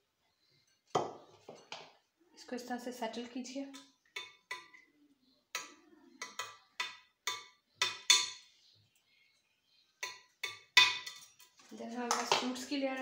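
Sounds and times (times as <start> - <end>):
metal utensil clinking on glass: 10.0 - 12.4.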